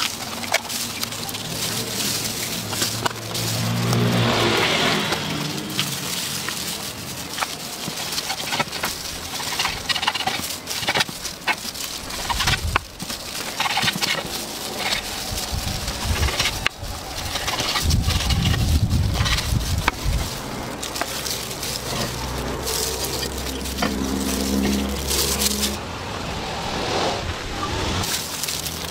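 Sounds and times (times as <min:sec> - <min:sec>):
low rumble: 0:01.3 - 0:07.9, 0:14.2 - 0:28.2.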